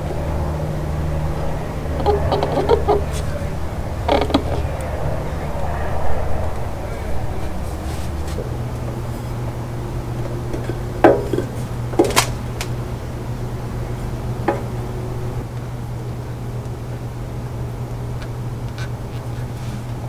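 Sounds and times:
steady low background hum: 0.0 - 20.0
oil filter knocks and clicks: 10.5 - 12.7.

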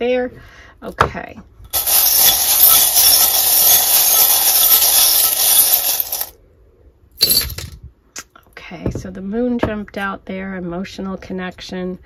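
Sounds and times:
metal charms rattling: 1.7 - 6.3.

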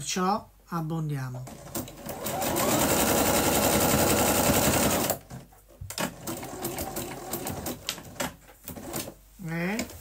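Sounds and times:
sewing machine running fast: 1.7 - 5.2, 6.2 - 7.8.

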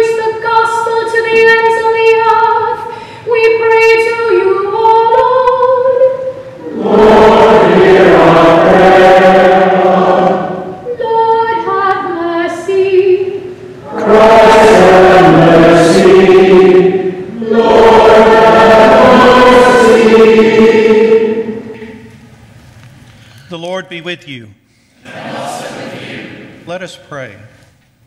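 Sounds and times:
church choir singing: 3.6 - 22.2, 25.0 - 26.6.

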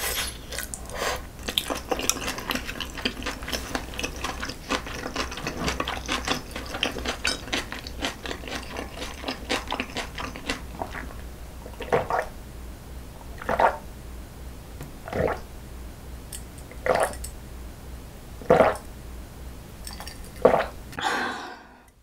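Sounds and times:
person gulping water: 11.7 - 12.3, 13.4 - 13.8, 15.0 - 15.4, 16.8 - 17.3, 18.5 - 18.8, 19.9 - 21.9.

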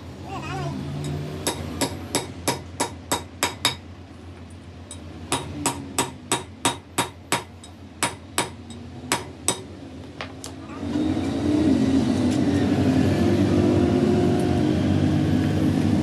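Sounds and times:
hammer striking metal: 1.0 - 3.9, 4.9 - 9.7.

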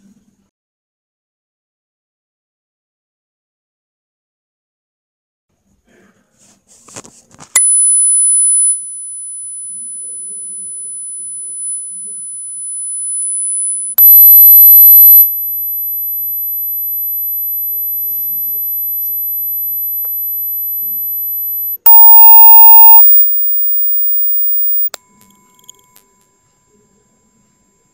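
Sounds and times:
high-pitched tones from phone speaker: 21.9 - 23.2.

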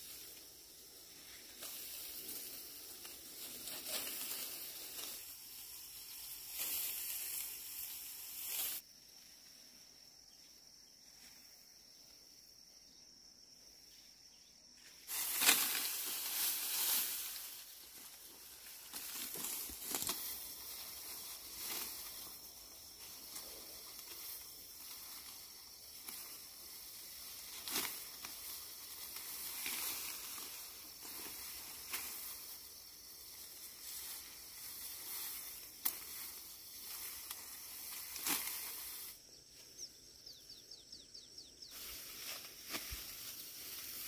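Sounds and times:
hissing rustle with crackles: 0.0 - 9.8, 14.8 - 40.5, 41.4 - 44.0
high ticks or chirps: 13.9 - 44.0.

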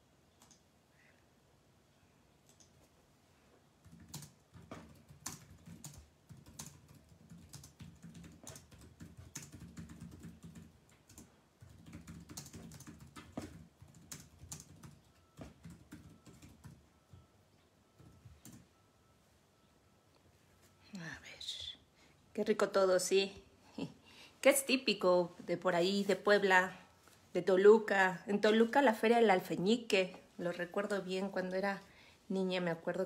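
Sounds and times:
faint typing clicks: 3.8 - 18.7.

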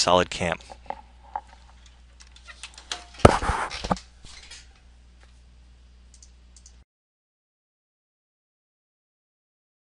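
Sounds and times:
clattering rustling noise: 0.6 - 4.8
faint clicks: 6.1 - 6.8.

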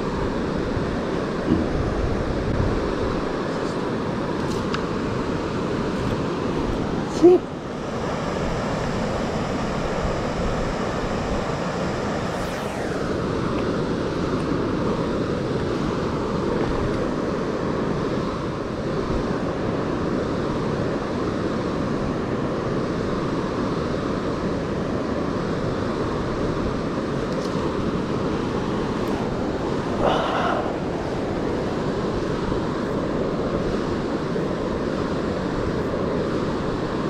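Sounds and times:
falling swish: 12.2 - 13.6.

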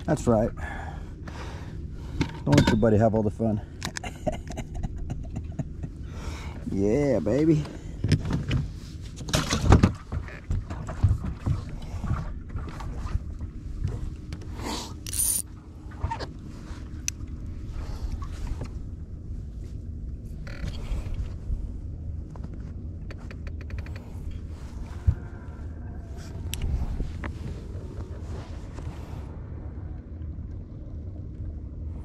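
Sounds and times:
steady low hum: 0.0 - 32.0
knocks and bumps on boat deck: 8.0 - 11.7.

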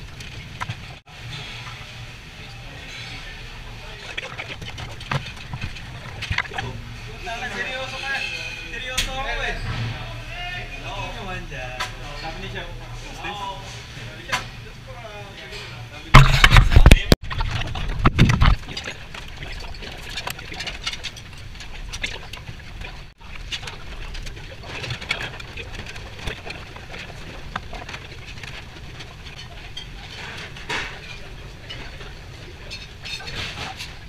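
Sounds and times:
kitchen ventilation hum: 0.0 - 34.0
plates and utensils clinking: 2.5 - 9.8, 15.5 - 34.0.

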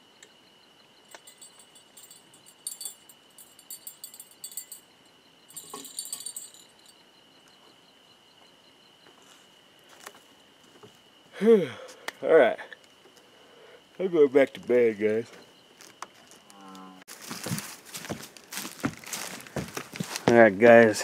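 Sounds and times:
high insect trill: 0.0 - 21.0
metallic jingling and clinking: 1.1 - 7.0.

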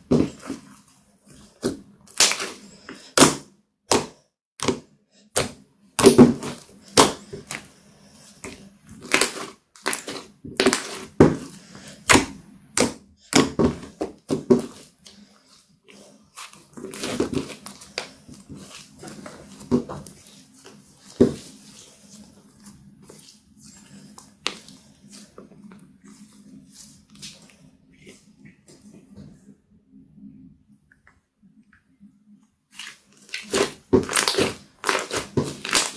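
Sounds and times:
slime squelching and popping: 8.4 - 11.5, 32.7 - 35.9.

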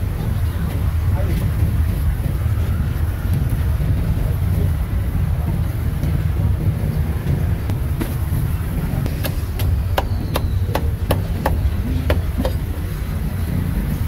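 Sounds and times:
cleaver chopping on wooden block: 9.1 - 12.7.

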